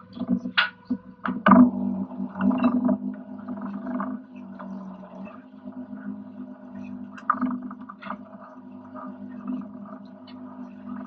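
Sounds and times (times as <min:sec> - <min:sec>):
boat machinery drone: 0:00.0 - 0:11.0.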